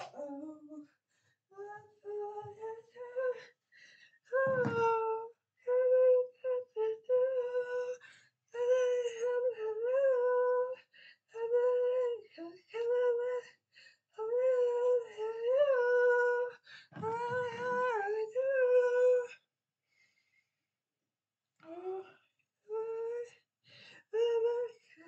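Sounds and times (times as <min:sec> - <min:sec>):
person singing unaccompanied: 0:04.3 - 0:08.0, 0:14.2 - 0:19.3.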